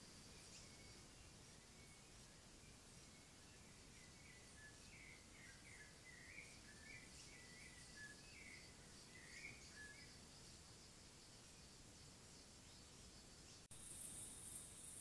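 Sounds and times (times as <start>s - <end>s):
bird chirping: 0.0s - 15.0s
steady hiss: 0.0s - 15.0s.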